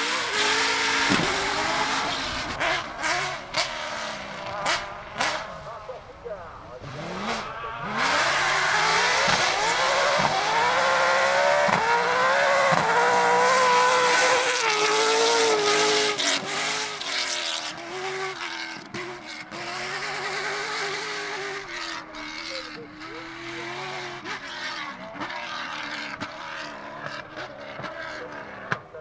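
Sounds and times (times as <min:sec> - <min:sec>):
rally car engine accelerating: 0:00.0 - 0:29.0
engine cracks: 0:00.6 - 0:10.4.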